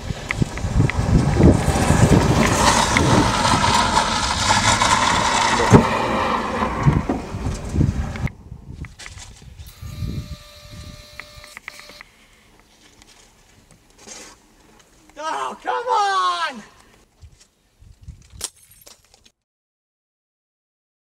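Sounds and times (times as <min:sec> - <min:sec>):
car tyres spinning on gravel: 0:00.0 - 0:08.3
car engine rumble: 0:00.0 - 0:08.6.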